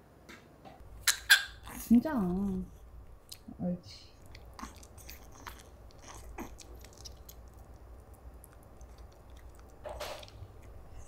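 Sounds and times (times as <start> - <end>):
dog chewing a treat: 4.2 - 11.0.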